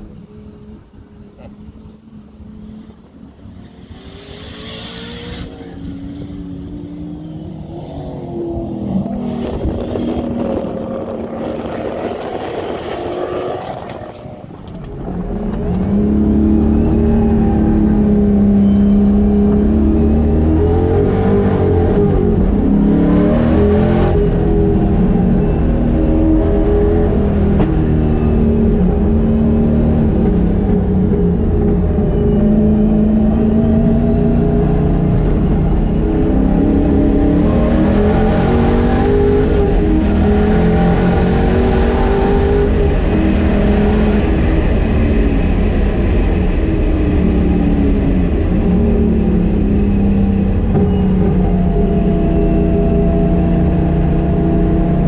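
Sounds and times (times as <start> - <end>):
engine revving inside car: 15.4 - 55.0.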